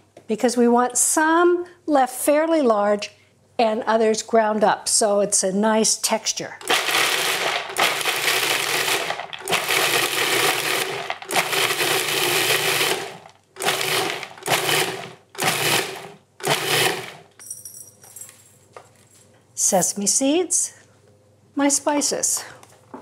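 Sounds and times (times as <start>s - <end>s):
food processor pulsing nuts: 6.6s - 17.3s.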